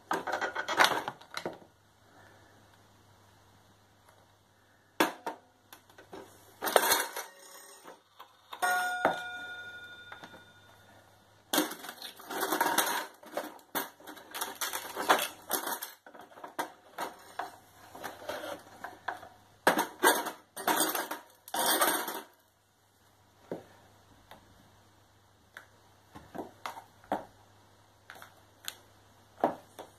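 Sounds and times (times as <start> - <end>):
clock chime ringing: 8.6 - 10.9.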